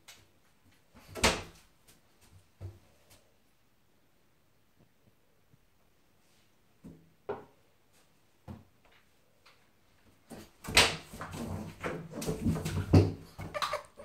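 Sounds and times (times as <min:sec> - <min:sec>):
animals scuffling in a tub: 0:10.3 - 0:14.0.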